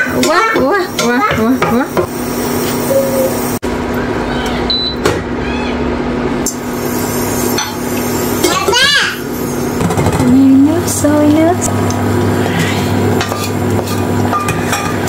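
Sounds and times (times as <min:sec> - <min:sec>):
utensils knocking on pots: 0:00.0 - 0:02.1, 0:13.2 - 0:15.0
steady hum: 0:00.0 - 0:15.0.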